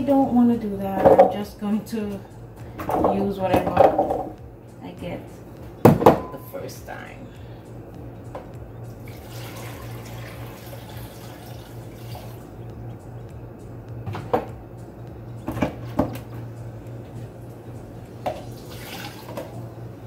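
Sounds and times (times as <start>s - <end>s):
steady low hum: 0.0s - 20.0s
water pouring into blender jar: 9.1s - 12.4s, 18.6s - 19.5s.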